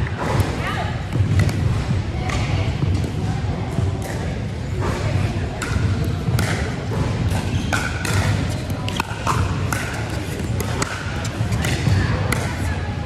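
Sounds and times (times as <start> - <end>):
steady hall hum: 0.0 - 13.0
paddles hitting plastic ball: 5.6 - 12.6.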